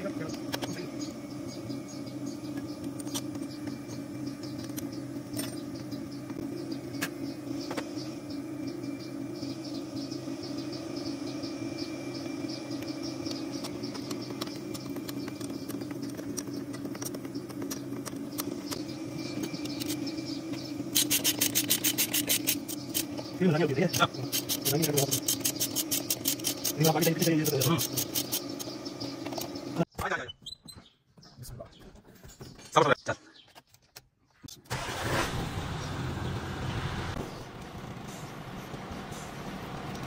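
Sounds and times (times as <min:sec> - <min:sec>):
ratchet wrench clicking: 0:20.9 - 0:23.1, 0:23.9 - 0:28.4
diesel truck engine idling: 0:34.7 - 0:40.0.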